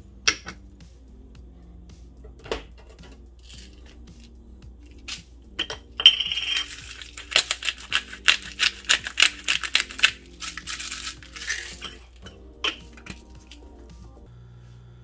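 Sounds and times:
background music: 0.0s - 14.5s
spice shaker rattling: 3.4s - 5.4s, 6.0s - 13.8s.

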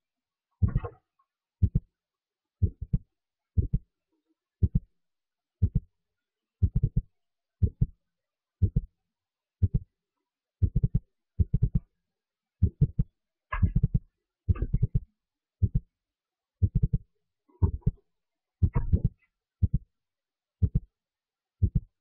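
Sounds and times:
low rhythmic thumping: 0.6s - 1.0s, 1.6s - 1.9s, 2.6s - 3.9s, 4.6s - 4.9s, 5.6s - 5.9s, 6.6s - 7.9s, 8.6s - 8.9s, 9.6s - 9.9s, 10.6s - 11.9s, 12.6s - 15.9s, 16.6s - 18.0s, 18.6s - 19.9s, 20.6s - 20.9s, 21.6s - 22.0s.

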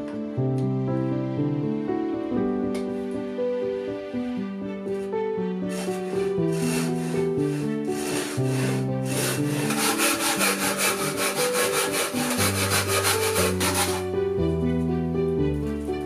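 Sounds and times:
piano music: 0.0s - 16.0s
hand saw cutting wood: 5.7s - 14.2s.

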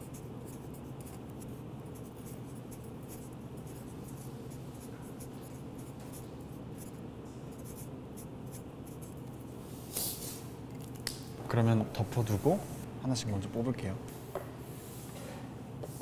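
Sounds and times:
pens scratching on paper: 0.0s - 7.0s
steady low hum: 0.0s - 16.0s.

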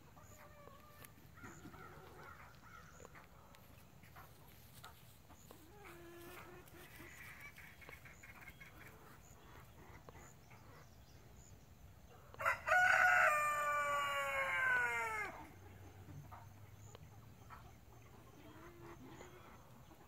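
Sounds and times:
faint bird calls: 0.2s - 11.5s
rooster crowing: 12.4s - 15.5s.

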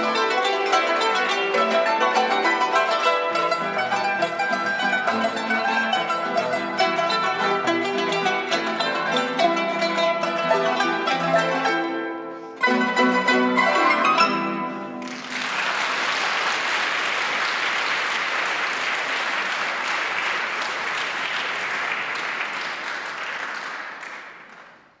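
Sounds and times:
plucked zither chords: 0.0s - 15.1s
audience applause: 15.0s - 25.0s.

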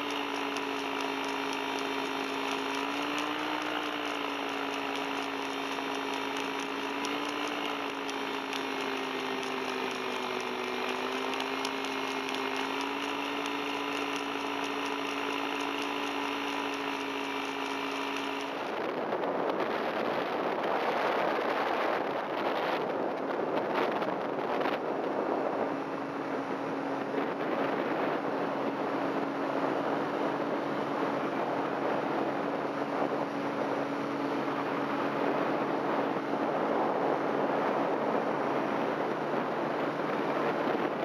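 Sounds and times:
paramotor engine and propeller drone: 0.0s - 41.0s
wind rushing over microphone: 18.5s - 41.0s.

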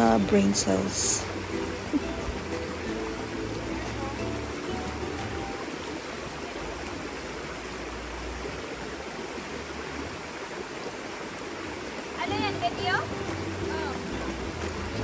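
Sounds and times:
river rushing over rocks: 0.0s - 15.0s.

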